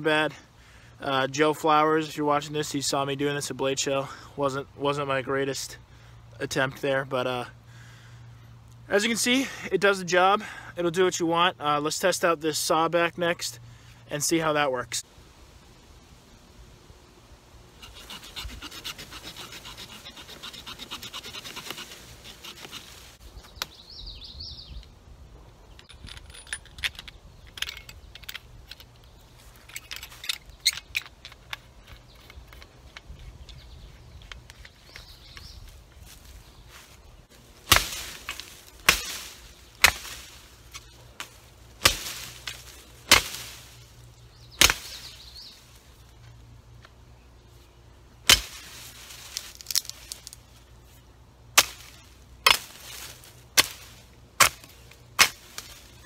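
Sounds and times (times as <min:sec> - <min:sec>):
saw cutting green wood: 0:17.8 - 0:23.0
shovel blade chopping wood: 0:17.8 - 0:23.0, 0:37.6 - 0:43.8, 0:44.6 - 0:45.2, 0:48.2 - 0:50.4, 0:51.5 - 0:56.0.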